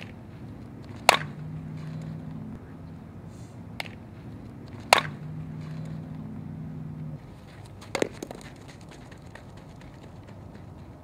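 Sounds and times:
bat striking ball: 0:00.0 - 0:02.6, 0:03.7 - 0:08.8
low hum: 0:00.0 - 0:11.0.

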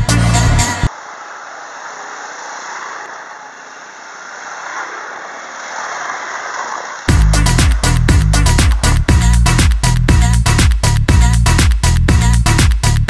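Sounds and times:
engine and tyre noise: 0:00.0 - 0:12.2
quad bikes riding past: 0:00.3 - 0:09.6.

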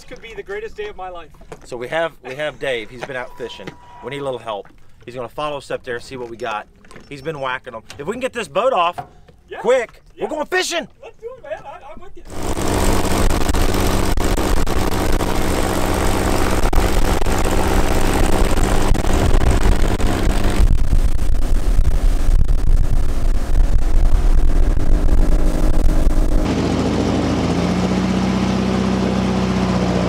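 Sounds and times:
wind: 0:00.0 - 0:30.0
airboat engine and propeller: 0:12.3 - 0:30.0
outboard motor drone: 0:12.3 - 0:30.0.

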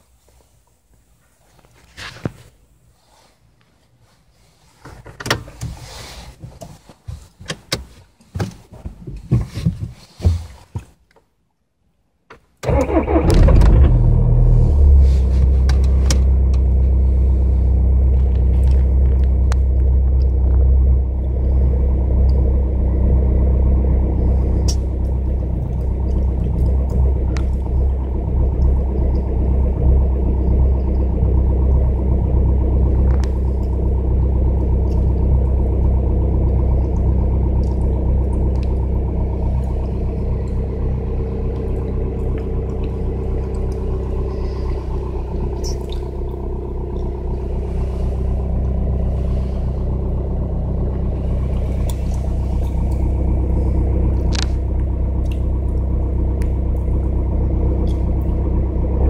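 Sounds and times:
diesel engine idling: 0:12.7 - 0:59.0.

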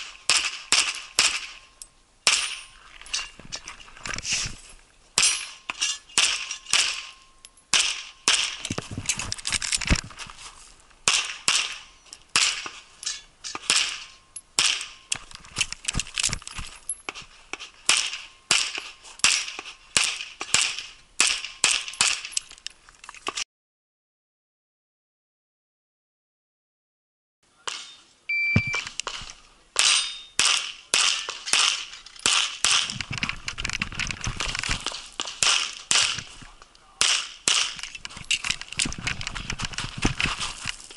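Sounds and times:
rapid pistol shots: 0:11.1 - 0:11.8.

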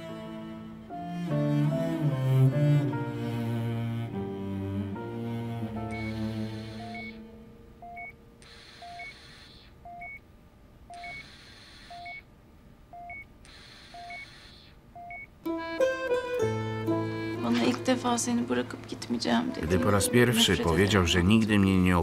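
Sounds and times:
cello music: 0:00.0 - 0:08.0, 0:15.4 - 0:22.0
patient monitor two-tone beeps: 0:05.9 - 0:06.2, 0:06.8 - 0:07.2, 0:07.8 - 0:10.2, 0:10.9 - 0:12.3, 0:12.9 - 0:13.3, 0:13.9 - 0:14.4, 0:15.0 - 0:15.3.

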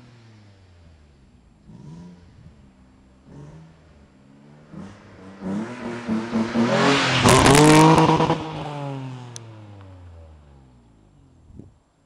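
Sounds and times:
car accelerating past: 0:04.4 - 0:10.8.

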